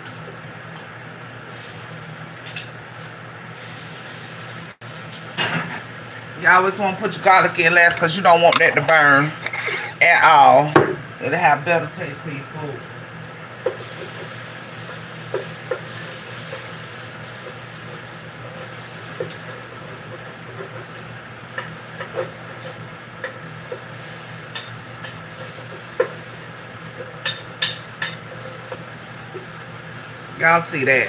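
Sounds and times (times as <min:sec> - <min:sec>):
vegetables sizzling in pan: 0:03.5 - 0:06.6, 0:12.8 - 0:31.0.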